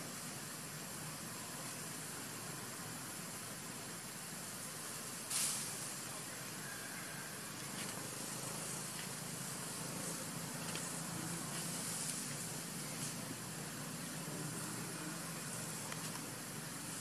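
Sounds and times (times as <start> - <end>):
background hiss: 0.0 - 17.0.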